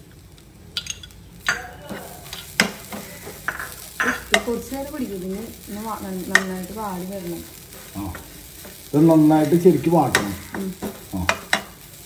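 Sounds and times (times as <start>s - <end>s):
soft sizzle: 0.0s - 12.0s
metal spatula scraping frying pan: 0.8s - 4.6s.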